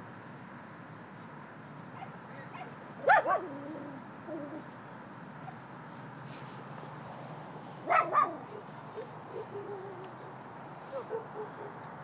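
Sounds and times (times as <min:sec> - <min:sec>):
dog barking: 0:02.6 - 0:03.5, 0:07.8 - 0:10.1, 0:10.9 - 0:11.8.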